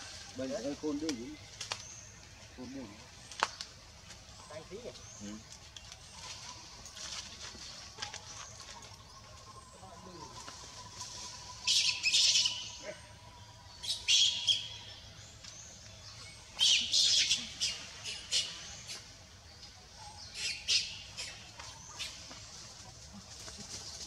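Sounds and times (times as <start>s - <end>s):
wild birds chirping and squawking: 0.0s - 24.0s.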